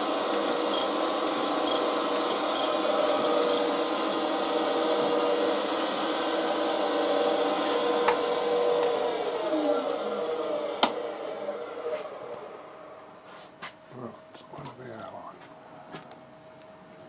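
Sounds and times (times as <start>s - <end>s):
surface grinder humming: 0.0s - 13.2s.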